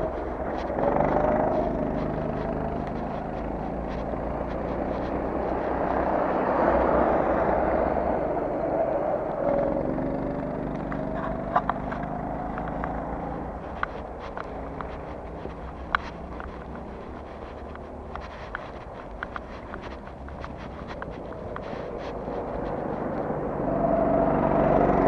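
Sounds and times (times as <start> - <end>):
faint footsteps: 0.0 - 8.6, 9.2 - 23.6
traffic passing: 0.0 - 25.0.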